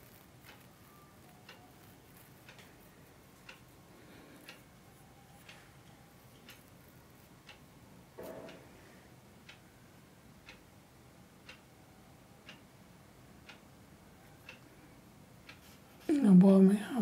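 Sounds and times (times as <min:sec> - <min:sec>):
clock ticking: 0:00.1 - 0:08.7, 0:09.4 - 0:10.8, 0:11.4 - 0:11.8, 0:12.4 - 0:12.7, 0:13.4 - 0:15.7.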